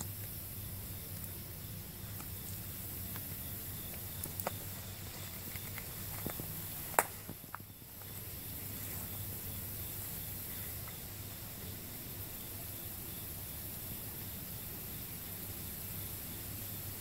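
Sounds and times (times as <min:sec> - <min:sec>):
dry leaves crackling: 0:00.0 - 0:11.4
steady outdoor hiss: 0:00.0 - 0:17.0.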